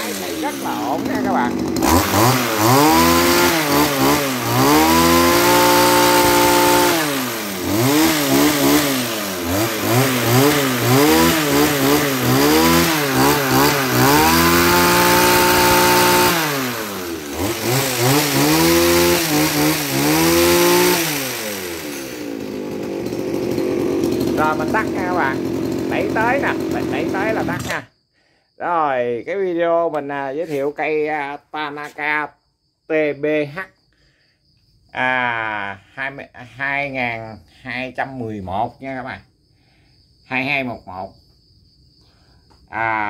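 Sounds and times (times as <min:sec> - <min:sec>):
hedge trimmer engine revving: 0:00.0 - 0:27.9.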